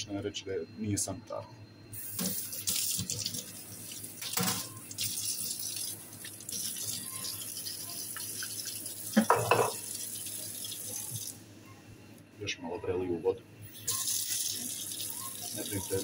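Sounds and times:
tap water running into sink: 2.1s - 11.4s, 13.8s - 16.0s.

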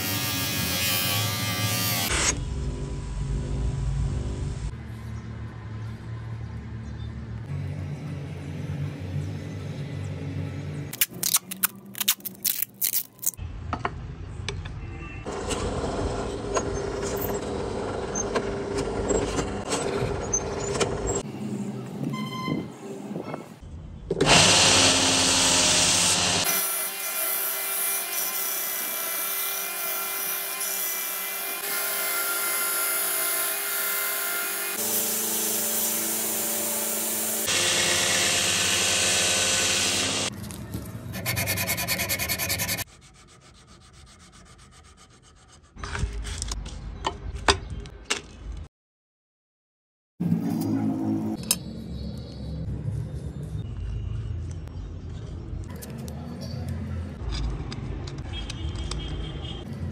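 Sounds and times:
power tools cutting wood: 0.0s - 2.4s, 24.2s - 40.3s
drill boring through wood: 24.2s - 40.3s.

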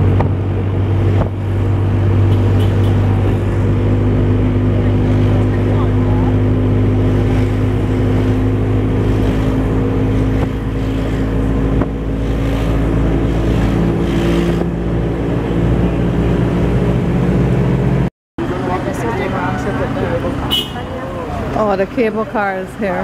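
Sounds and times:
wind noise: 0.0s - 18.1s
vehicle engine humming: 0.0s - 23.0s.

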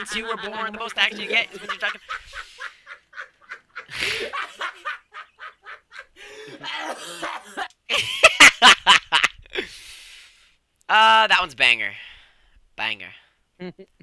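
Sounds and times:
man laughing: 0.0s - 9.6s.

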